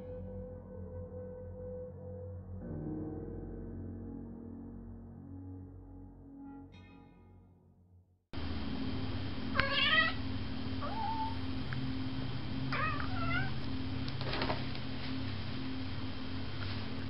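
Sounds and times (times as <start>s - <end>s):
recording hum and hiss: 8.4s - 17.0s
cat meowing: 9.6s - 10.2s, 10.8s - 11.4s, 12.7s - 13.5s.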